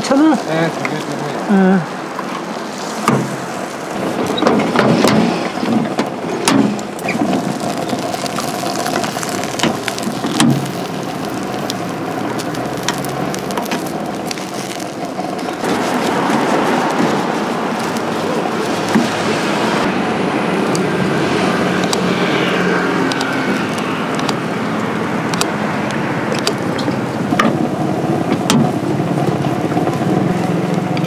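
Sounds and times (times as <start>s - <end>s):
passing traffic: 0.0s - 31.0s
sharp clicks and knocks: 3.0s - 3.4s, 4.2s - 10.8s, 25.3s - 25.6s, 26.3s - 27.7s, 28.3s - 28.8s.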